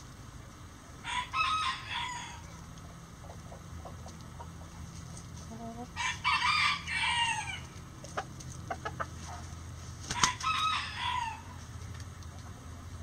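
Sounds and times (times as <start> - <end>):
rooster crowing: 1.0 - 2.5, 6.0 - 7.6, 10.2 - 11.6
rooster clucking: 3.2 - 9.5.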